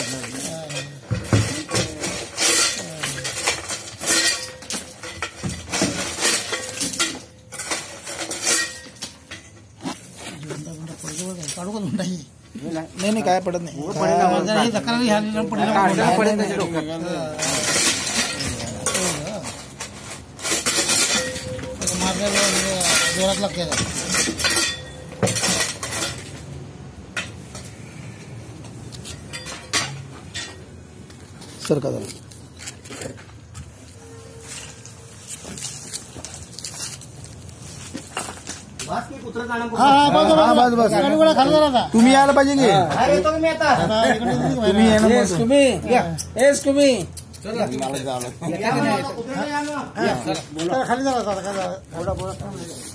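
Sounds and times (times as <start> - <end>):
concrete rubble clattering: 0.0 - 9.8, 16.5 - 26.5.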